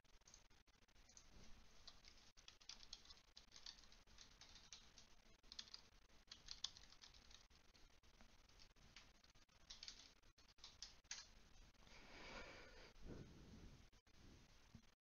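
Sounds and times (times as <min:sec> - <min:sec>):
faint keyboard typing: 0:00.0 - 0:11.8.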